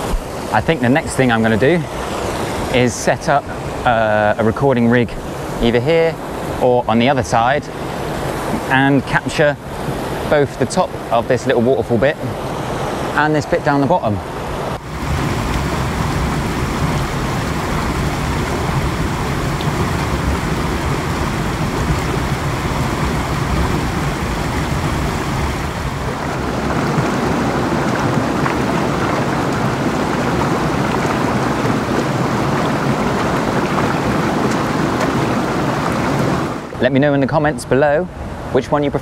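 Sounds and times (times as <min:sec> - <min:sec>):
water flowing over small waterfall: 0:00.0 - 0:36.8.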